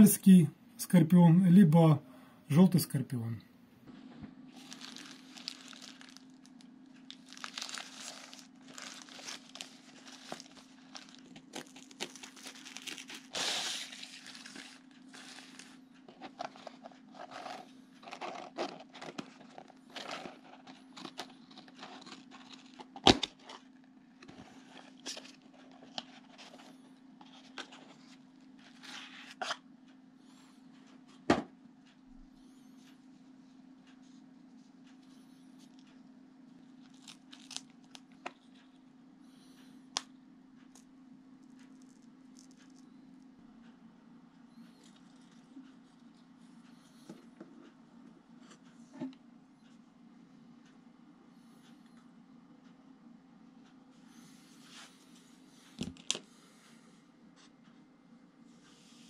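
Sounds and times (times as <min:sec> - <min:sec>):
plastic wrapping crinkling: 0:04.5 - 0:26.7, 0:36.8 - 0:38.2
paper rustling: 0:04.6 - 0:06.2, 0:07.1 - 0:23.6.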